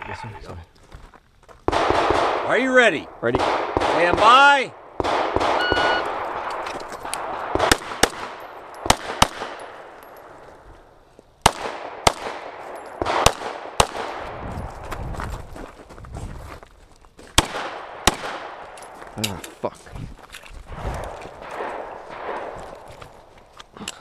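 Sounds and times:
pistol shots with echo: 1.7s - 2.6s, 3.3s - 6.6s, 7.2s - 10.2s, 11.4s - 14.3s, 17.4s - 18.8s, 21.4s - 22.6s.

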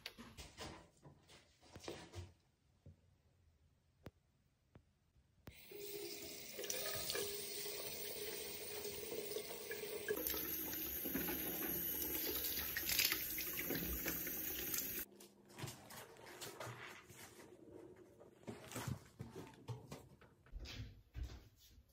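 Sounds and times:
tap running into sink: 6.6s - 15.0s.

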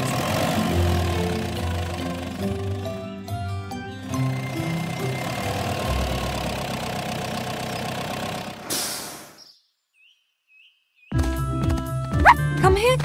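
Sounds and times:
truck engine running: 0.0s - 9.3s
short air brake hiss: 8.6s - 9.4s.

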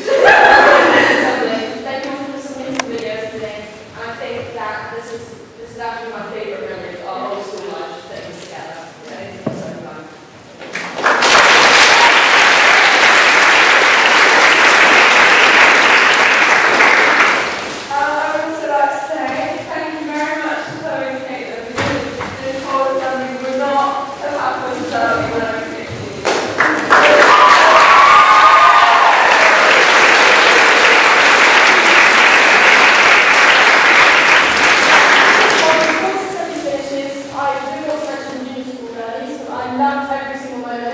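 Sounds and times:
crowd applauding: 10.7s - 17.9s, 26.6s - 36.1s
voices cheering: 11.5s - 17.0s, 26.9s - 34.5s.

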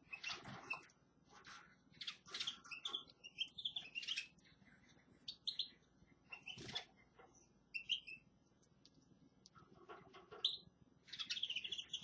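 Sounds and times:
finches chirping: 2.0s - 4.4s, 5.3s - 6.9s, 7.7s - 8.3s, 10.3s - 12.0s.

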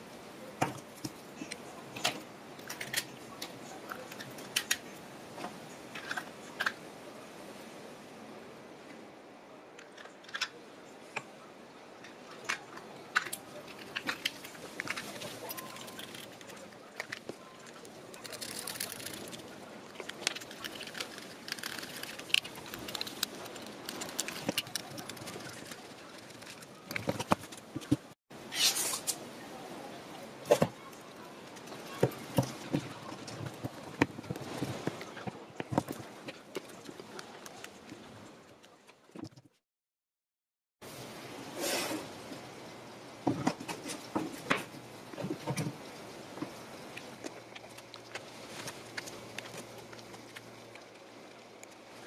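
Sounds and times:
plastic parts clicking: 12.4s - 28.0s.

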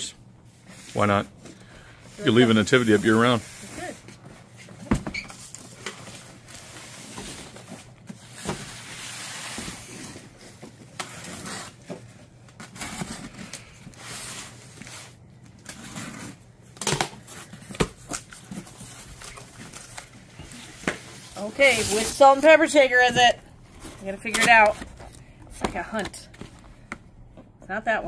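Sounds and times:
cardboard scraping and rustling: 17.2s - 26.6s.

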